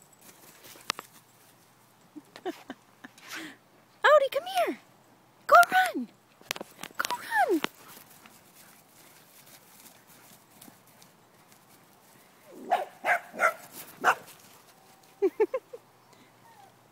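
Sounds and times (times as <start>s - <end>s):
dog barking: 12.6s - 14.3s.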